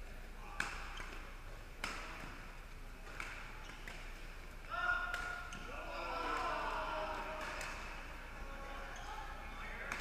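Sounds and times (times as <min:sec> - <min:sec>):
shoes squeaking on court floor: 0:00.0 - 0:06.5, 0:07.4 - 0:10.0
rackets striking shuttlecock: 0:00.6 - 0:04.3, 0:05.0 - 0:06.5.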